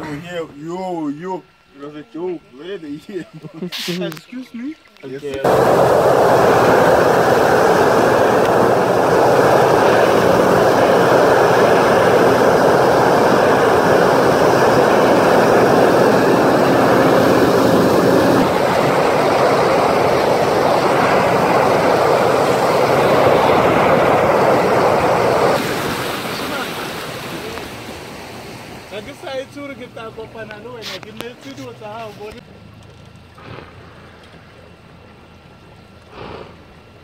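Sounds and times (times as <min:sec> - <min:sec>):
wind on microphone: 0:05.4 - 0:28.9
water rushing along hull: 0:05.4 - 0:30.8
speedboat engine: 0:05.4 - 0:37.0.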